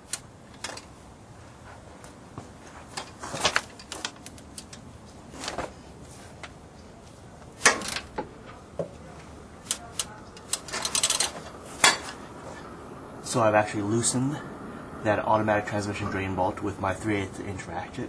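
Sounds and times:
ratchet clacks and clicks: 9.7 - 11.4.

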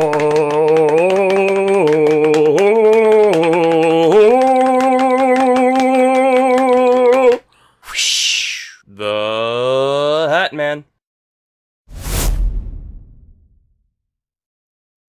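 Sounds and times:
man singing a held vowel: 0.0 - 7.5, 8.9 - 10.3.

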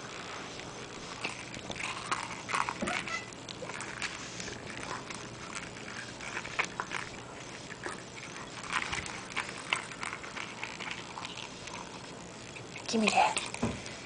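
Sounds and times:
dog mouth and body noises: 0.0 - 14.0.

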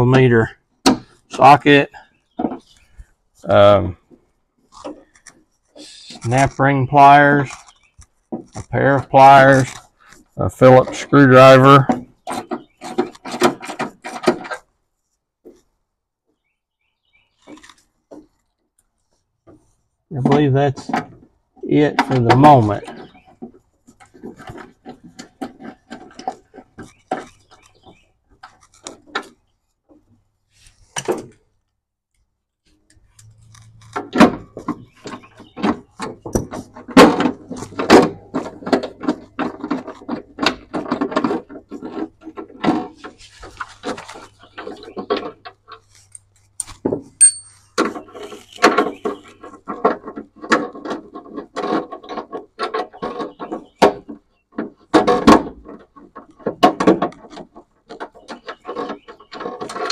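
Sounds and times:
tools clattering on plastic: 33.8 - 59.9.

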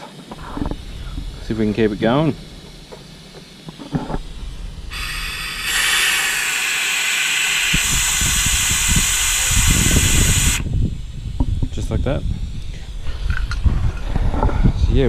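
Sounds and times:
compressed air hissing: 0.0 - 14.3.

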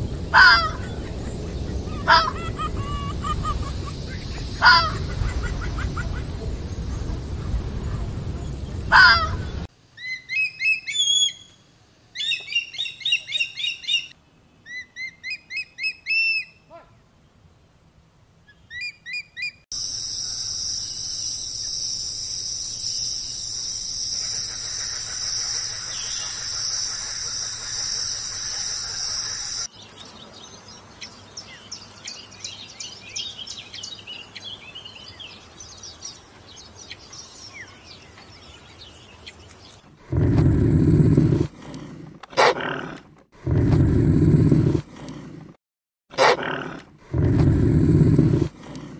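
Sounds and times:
birds chirping: 0.0 - 16.8, 18.5 - 45.5.

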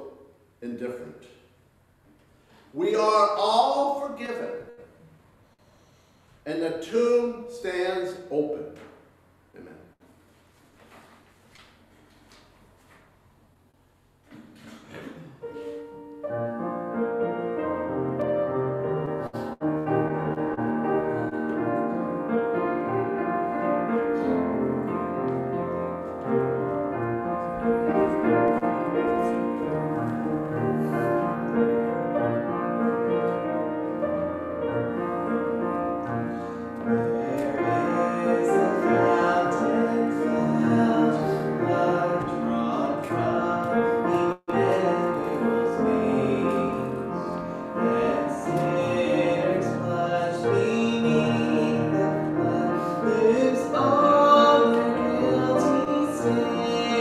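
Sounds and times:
hymn on keyboard: 36.0 - 57.0
voices singing: 36.8 - 57.0.

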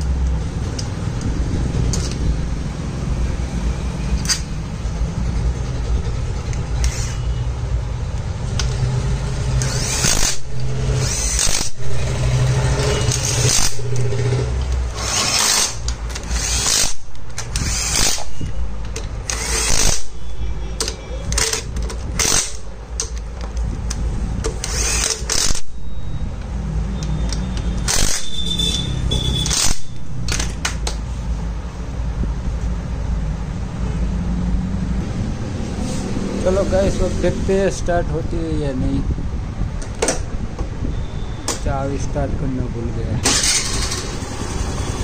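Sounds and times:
impact driver bursts: 9.5 - 18.5, 19.2 - 20.2, 21.4 - 22.7, 24.5 - 25.8, 27.6 - 30.4, 43.2 - 45.0.

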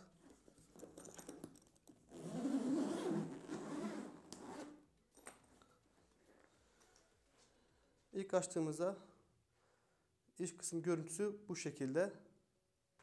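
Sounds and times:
handling rattles: 0.2 - 2.0
zipper pulled open: 2.1 - 4.8.

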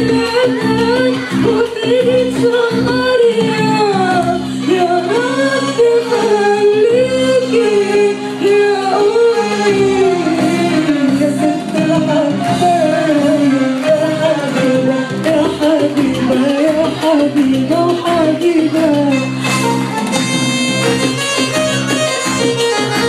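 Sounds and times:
woman singing into microphone: 0.0 - 20.0
electronic keyboard: 0.0 - 23.0.

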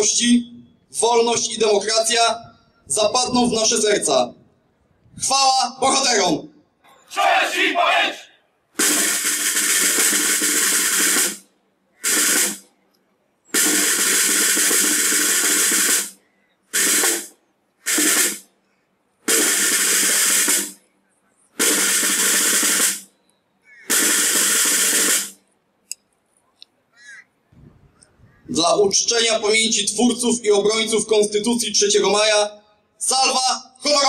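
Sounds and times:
snare drum rolls: 8.8 - 12.7, 13.5 - 18.5, 19.2 - 20.8, 21.6 - 23.1, 23.8 - 25.4.

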